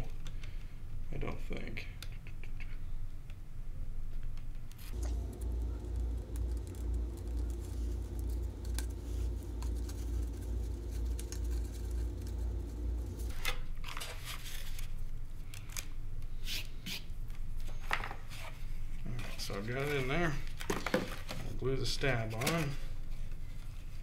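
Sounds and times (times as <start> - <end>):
steady low hum: 2.7 - 13.8.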